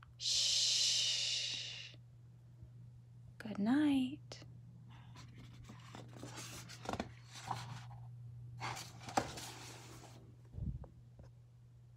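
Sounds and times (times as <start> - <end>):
steady low hum: 0.0 - 11.9
paper rustling of book handled: 5.0 - 8.0, 8.6 - 10.2.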